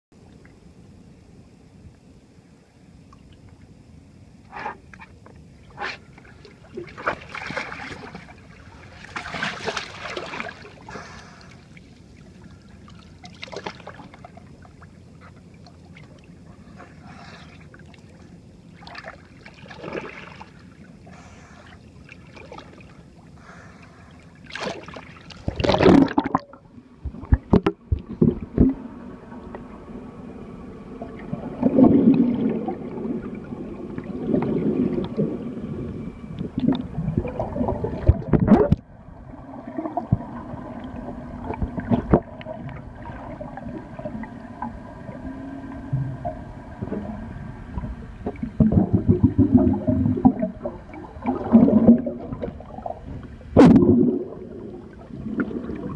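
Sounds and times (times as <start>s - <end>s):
water lapping against boat hull: 4.5s - 29.7s
underwater gurgling and bubbling: 24.7s - 55.9s.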